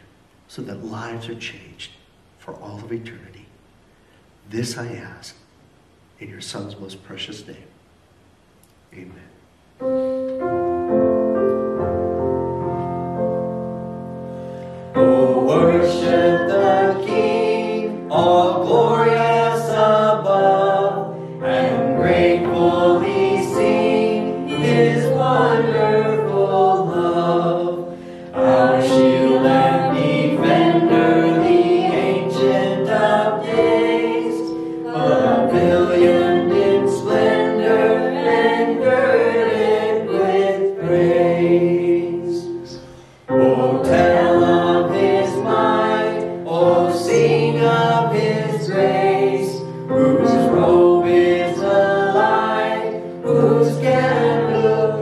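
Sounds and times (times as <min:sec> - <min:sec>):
instrumental accompaniment: 0:09.8 - 0:55.0
group singing a hymn: 0:14.6 - 0:55.0.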